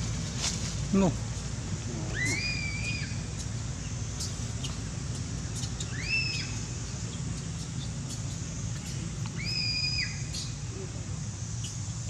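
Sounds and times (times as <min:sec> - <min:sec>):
monkey squealing call: 0:02.0 - 0:03.5, 0:05.6 - 0:06.7, 0:09.4 - 0:10.6.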